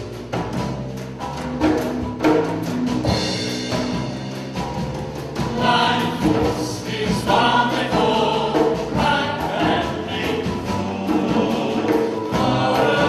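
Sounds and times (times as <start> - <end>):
drum kit and cymbals: 0.0 - 13.0
hand drum: 0.0 - 13.0
choir singing: 5.4 - 13.0.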